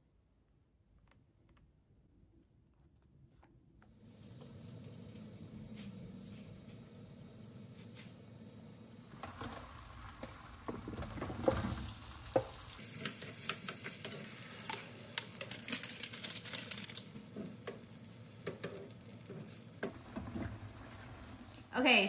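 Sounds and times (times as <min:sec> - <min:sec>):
food sizzling in a frying pan: 0:09.0 - 0:22.0.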